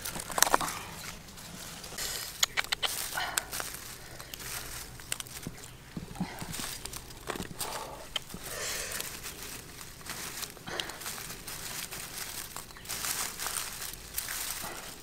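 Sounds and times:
dry grass rustling: 0:00.0 - 0:15.0
small sharp clicks: 0:02.3 - 0:03.1.

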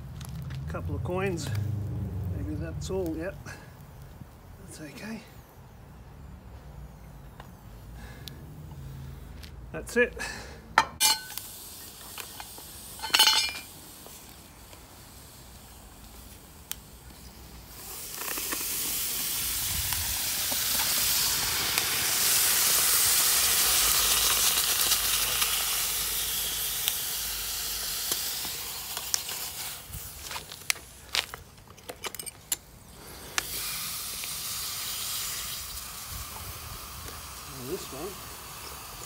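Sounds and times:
hot metal hissing on ice: 0:11.0 - 0:31.4, 0:32.8 - 0:39.0.

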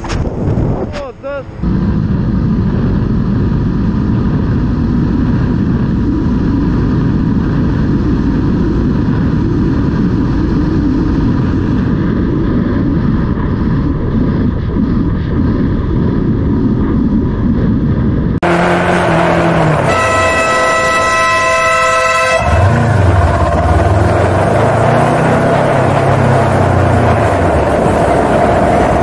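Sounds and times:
motorcycle engine rumble: 0:00.0 - 0:29.0
road noise: 0:00.0 - 0:29.0
vehicle horn: 0:18.4 - 0:23.2.

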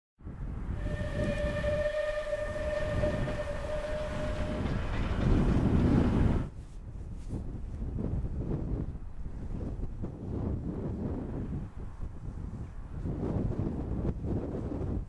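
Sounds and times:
wind on microphone: 0:00.2 - 0:15.0
steam locomotive rumbling: 0:00.6 - 0:06.6
steam whistle long note: 0:00.7 - 0:06.0.

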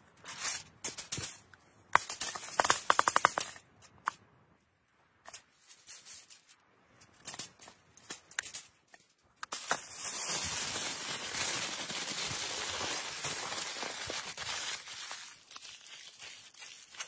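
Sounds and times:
aluminium foil crinkling: 0:09.5 - 0:17.0.

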